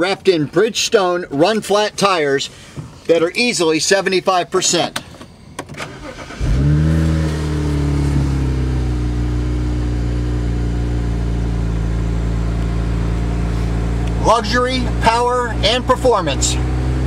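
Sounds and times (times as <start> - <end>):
car engine starting and idling: 4.2 - 17.0.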